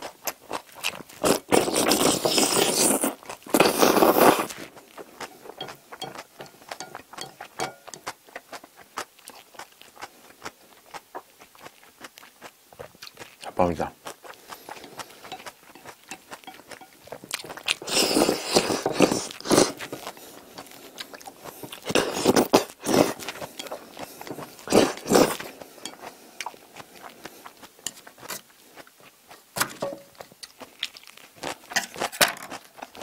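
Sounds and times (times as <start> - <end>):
chewing: 0.0 - 33.0
wet slurps of noodles: 1.2 - 4.7, 17.8 - 25.6.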